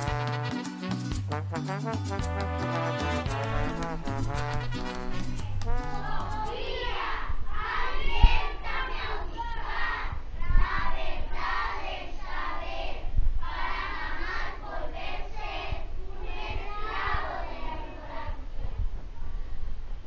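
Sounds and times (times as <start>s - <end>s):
chorus of children's voices: 5.5s - 19.5s.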